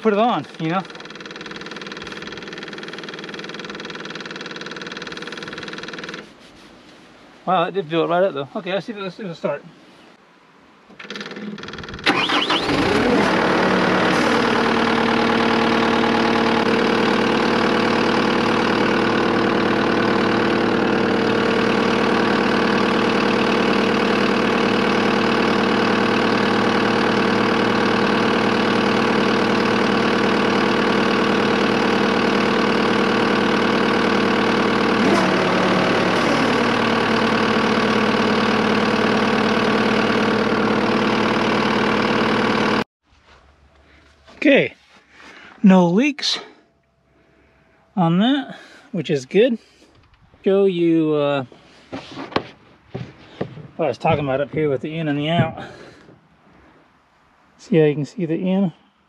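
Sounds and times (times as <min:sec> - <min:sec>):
diesel engine starting and idling: 0:00.0 - 0:06.3, 0:11.0 - 0:42.8.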